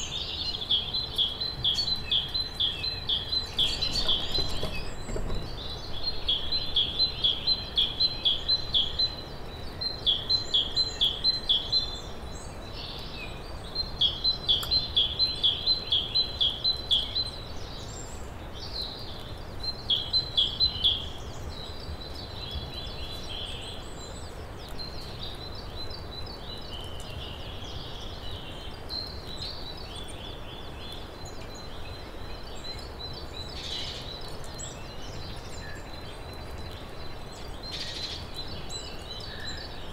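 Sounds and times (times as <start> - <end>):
low outdoor background hum: 0.0 - 39.9
bird twittering: 0.8 - 8.7.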